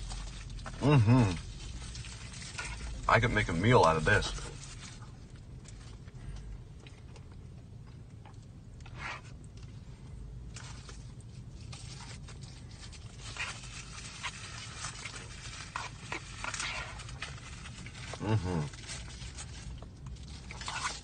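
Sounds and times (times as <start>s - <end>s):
steady low hum: 0.0s - 21.0s
chewing and mouth noises: 4.5s - 21.0s.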